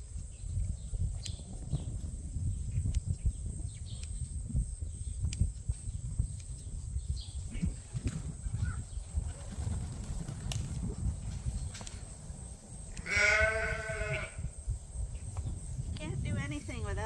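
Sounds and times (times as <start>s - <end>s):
steady low rumble: 0.0s - 17.0s
sheep bleating: 13.0s - 14.4s.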